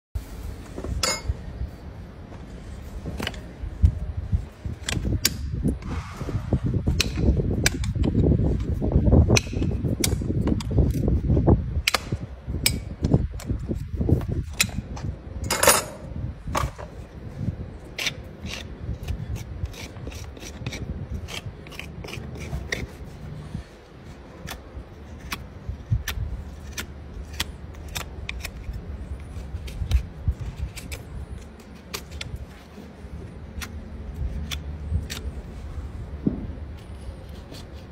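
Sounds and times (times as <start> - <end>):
low rumbling handling noise: 0.2 - 37.9
metal tools clicking and scraping: 1.0 - 1.4, 15.4 - 17.0.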